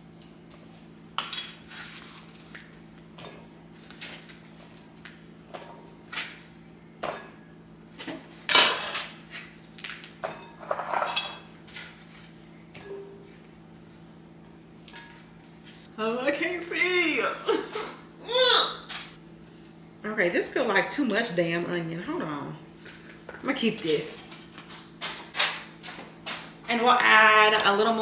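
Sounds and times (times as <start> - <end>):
kitchen knife and bowl clatter: 10.4 - 11.5.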